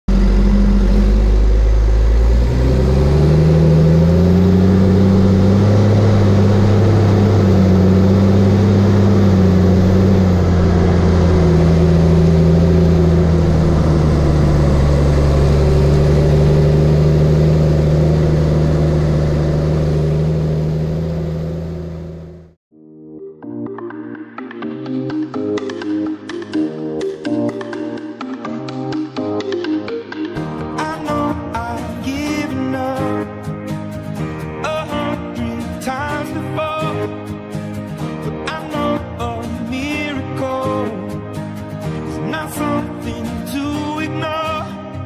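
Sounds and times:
diesel engine revving and running: 0.0 - 22.6.

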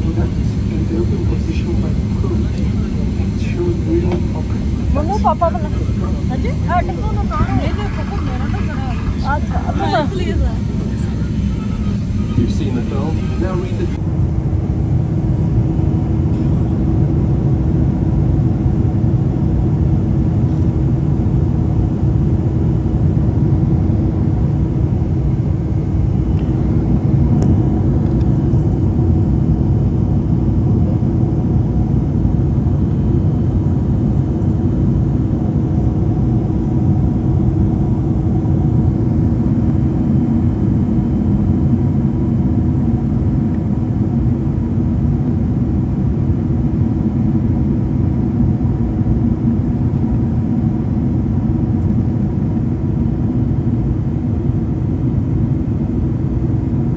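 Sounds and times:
airliner cabin engine rumble: 0.0 - 56.9
constant low hum: 0.0 - 56.9.

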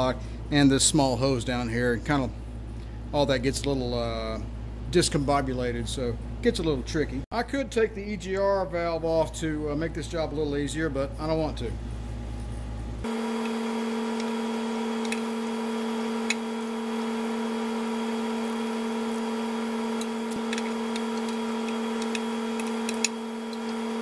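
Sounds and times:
steady electric hum: 0.0 - 24.0
socket wrench clicks: 20.0 - 23.8.

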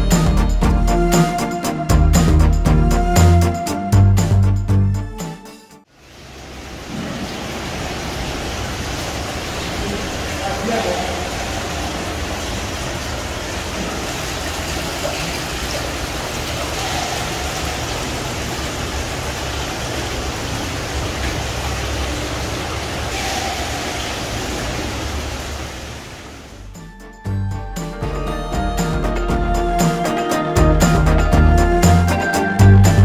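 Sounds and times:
rush of flowing water: 5.9 - 26.8.

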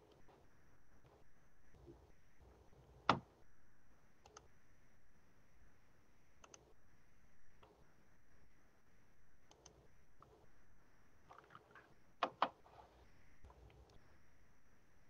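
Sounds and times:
mouse and keyboard clicks: 4.2 - 4.5, 6.4 - 6.7, 11.4 - 12.6.

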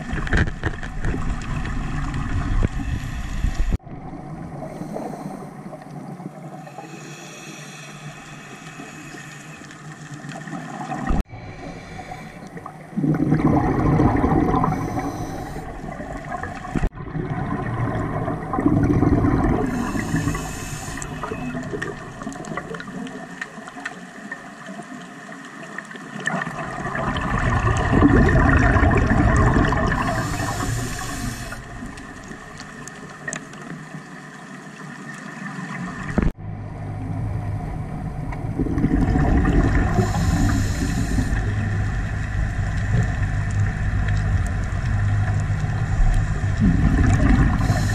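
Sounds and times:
underwater exhaled bubbles: 0.0 - 47.9
regulator breathing hiss: 2.8 - 3.8, 6.7 - 9.8, 11.4 - 12.6, 14.7 - 15.9, 19.7 - 21.5, 30.0 - 31.9, 39.9 - 41.8, 47.5 - 47.9.

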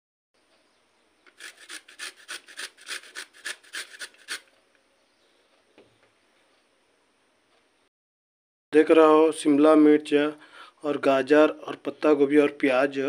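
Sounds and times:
carrot rasping on grater: 1.3 - 4.5.

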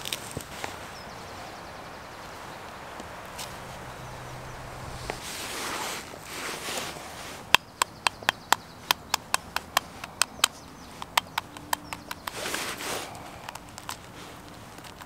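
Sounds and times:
knife tapping on eggshell: 7.6 - 12.3.

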